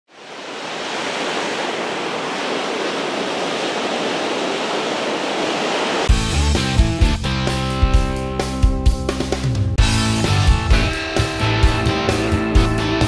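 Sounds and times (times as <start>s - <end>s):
ocean waves breaking: 0.1s - 6.2s
music: 6.1s - 13.0s.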